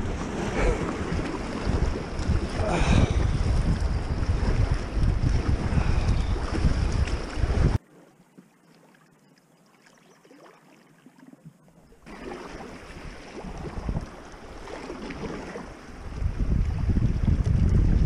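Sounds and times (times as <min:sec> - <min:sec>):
wind buffeting microphone: 0:00.0 - 0:07.8, 0:12.8 - 0:18.0
water rushing: 0:00.0 - 0:17.3.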